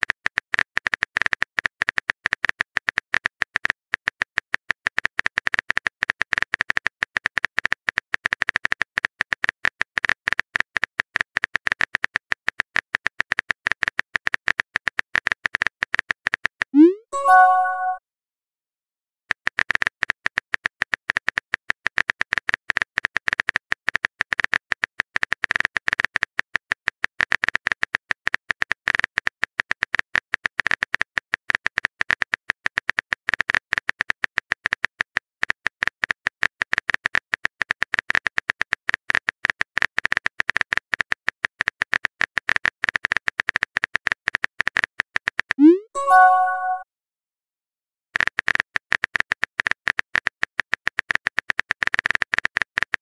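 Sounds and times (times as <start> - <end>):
keyboard typing clicks: 16.8 - 18.0, 45.6 - 46.8
rising swoosh and chime: 17.2 - 18.0, 45.6 - 46.8.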